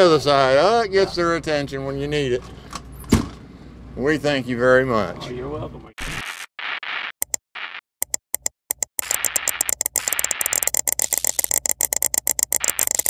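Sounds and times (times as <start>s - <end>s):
crackling static: 6.0s - 7.8s, 9.0s - 13.0s
rapid sharp clicks: 8.0s - 13.0s.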